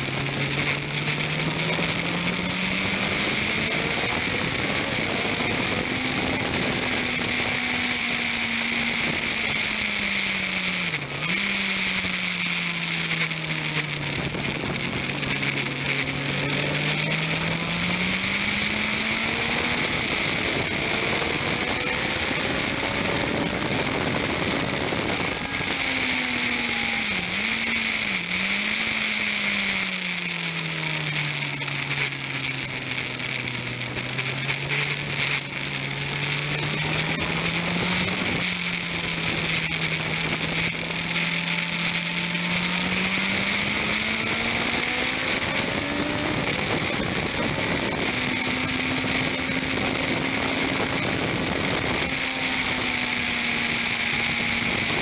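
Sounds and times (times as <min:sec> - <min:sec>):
motorcycle engine: 0:00.0 - 0:55.0
wind rush: 0:11.9 - 0:29.9, 0:32.6 - 0:55.0.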